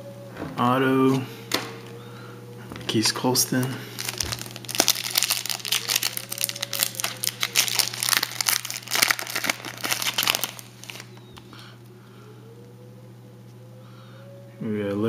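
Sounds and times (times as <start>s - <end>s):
foil wrapper crinkling and tearing: 2.9s - 11.4s.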